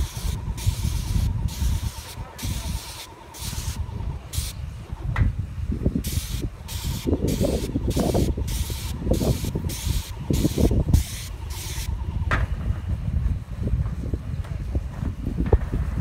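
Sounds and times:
paint sprayer hissing in bursts: 0:00.0 - 0:05.0, 0:06.0 - 0:12.2.

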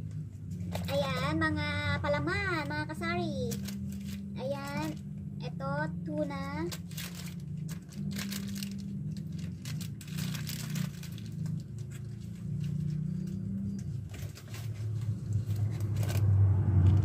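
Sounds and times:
low motor hum: 0:00.0 - 0:17.0
plastic packets crackling: 0:03.3 - 0:05.1, 0:06.4 - 0:16.2.

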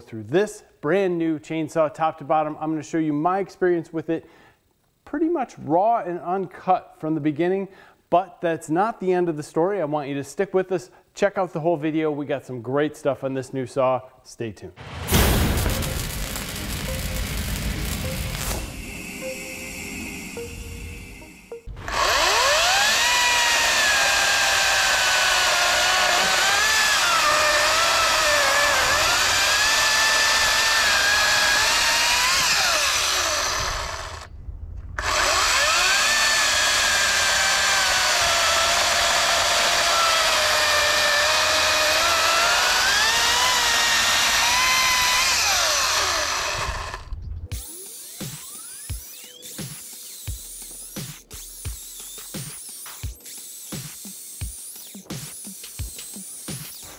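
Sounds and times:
electric chainsaw cutting log: 0:15.5 - 0:34.3, 0:35.0 - 0:56.9.

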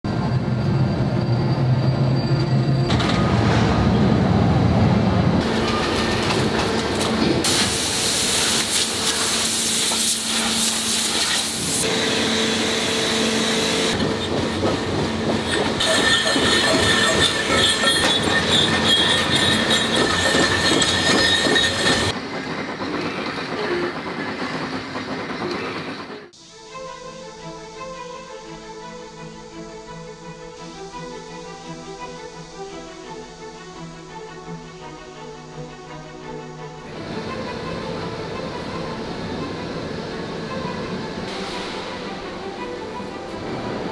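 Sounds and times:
machinery whining tones: 0:00.1 - 0:22.2
machinery hissing and rumbling: 0:00.1 - 0:43.9.

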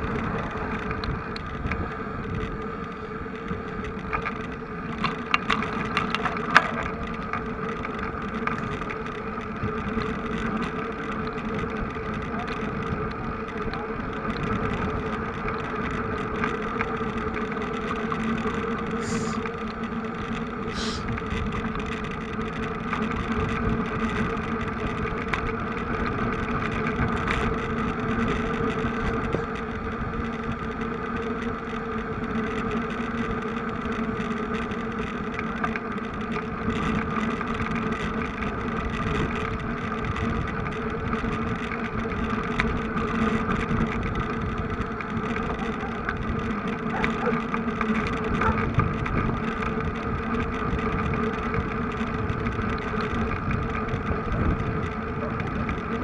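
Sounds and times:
vehicle engine droning: 0:00.0 - 0:56.0.

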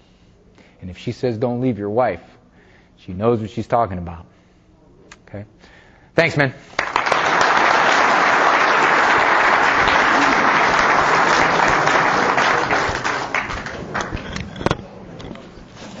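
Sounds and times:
audience applauding: 0:06.8 - 0:14.7.

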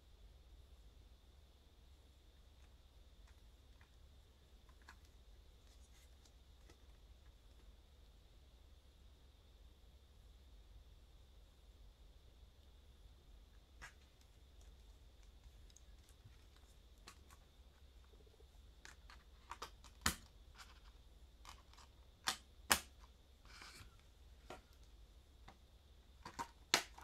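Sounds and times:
soft rustle: 0:02.5 - 0:07.8, 0:13.5 - 0:19.5.

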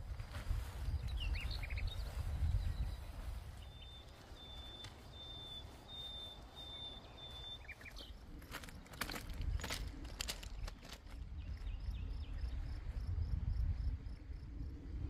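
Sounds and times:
bird chirps: 0:01.0 - 0:08.2.

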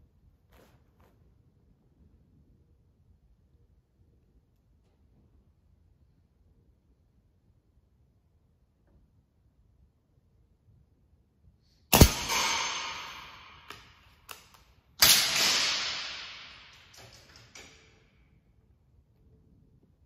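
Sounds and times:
air rifle firing crack: 0:11.9 - 0:14.0, 0:15.0 - 0:17.6.

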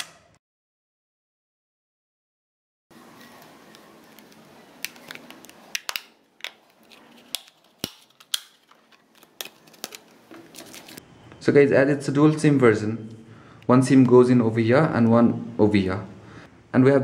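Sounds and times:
fingers handling phone: 0:03.2 - 0:11.0
plastic clips snapping: 0:03.7 - 0:10.1.

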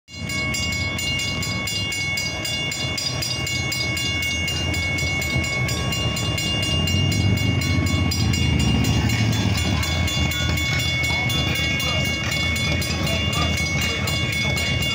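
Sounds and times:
crossing warning bells ringing: 0:00.1 - 0:14.9.

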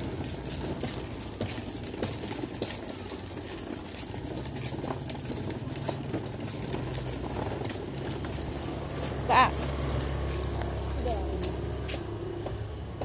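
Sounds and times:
plastic toy wheels rattling on concrete: 0:00.0 - 0:11.8
low engine hum: 0:04.3 - 0:13.0.

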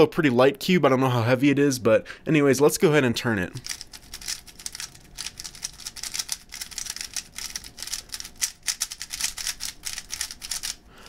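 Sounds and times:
puzzle cube clicking as turned: 0:03.6 - 0:10.8.

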